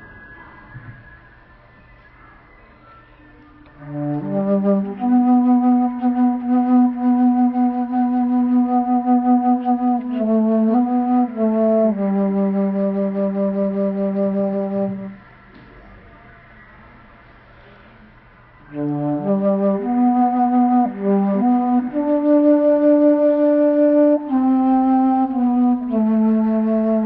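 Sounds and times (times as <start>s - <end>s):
flute choir playing sustained chords: 0.0s - 16.7s, 18.5s - 27.0s.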